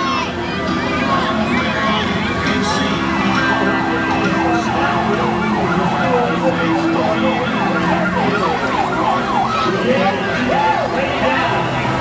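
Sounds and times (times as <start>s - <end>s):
emergency siren yelping: 2.6s - 12.0s.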